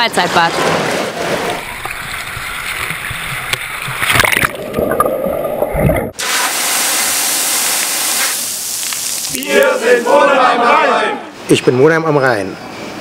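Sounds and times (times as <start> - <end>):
water splashing and sloshing: 0.1 - 9.4.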